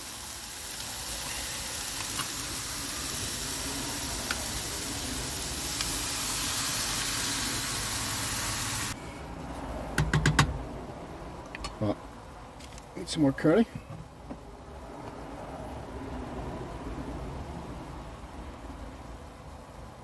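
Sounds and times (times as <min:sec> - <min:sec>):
food sizzling in frying pan: 0:00.0 - 0:09.0.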